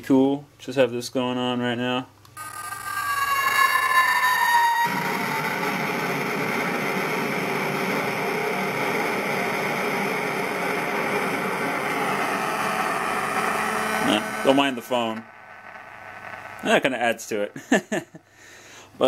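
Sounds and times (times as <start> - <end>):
feedback squeal: 2.4 - 17.5
harsh noisy hash: 4.2 - 17.8.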